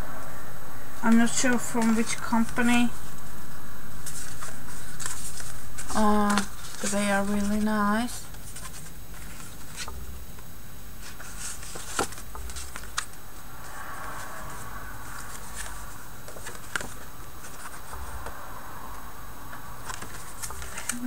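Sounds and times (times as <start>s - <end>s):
paper cards rustling: 1.0s - 3.3s, 4.0s - 10.0s, 11.0s - 18.4s, 19.8s - 21.0s
plastic sleeve crinkling: 4.0s - 9.9s.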